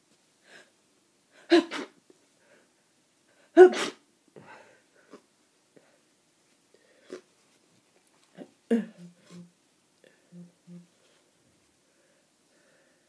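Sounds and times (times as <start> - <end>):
person sneezing: 1.4 - 2.0, 3.6 - 4.0, 8.4 - 9.5
faint breaths: 6.7 - 7.3, 8.4 - 13.0.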